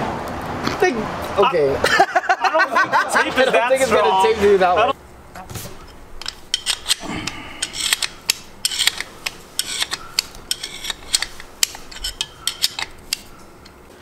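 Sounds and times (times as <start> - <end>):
spanner wrench clicking on metal: 6.2 - 13.8.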